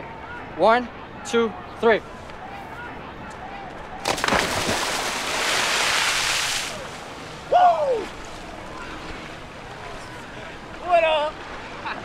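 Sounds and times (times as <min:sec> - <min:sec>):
splash into river water: 0:04.0 - 0:07.4.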